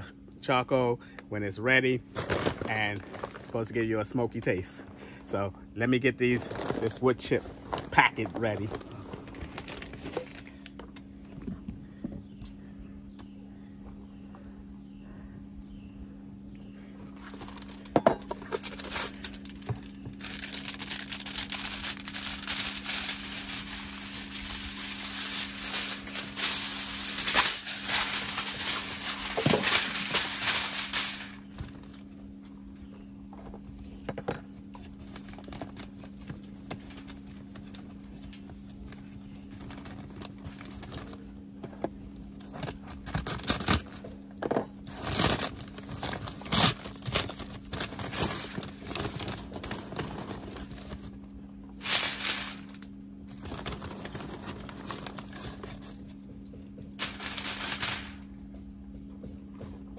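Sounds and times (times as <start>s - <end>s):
aluminum foil crinkling: 2.2s - 3.8s, 6.2s - 10.8s, 17.1s - 32.1s, 34.8s - 41.4s, 42.0s - 44.1s, 44.8s - 58.3s.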